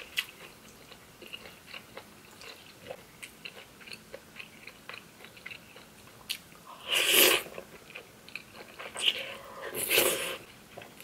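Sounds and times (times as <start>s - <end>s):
person chewing with wet smacks: 0.0s - 6.4s.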